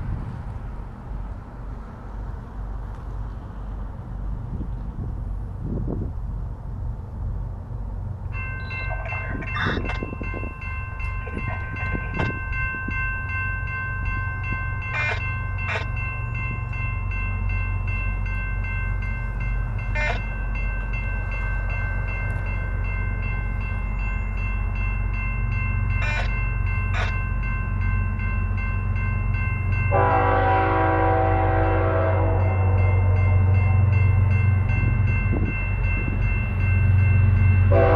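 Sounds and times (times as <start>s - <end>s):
diesel locomotives rumbling: 0.0s - 37.9s
crossing warning bell ringing: 8.2s - 37.9s
locomotive air horn: 29.9s - 33.2s.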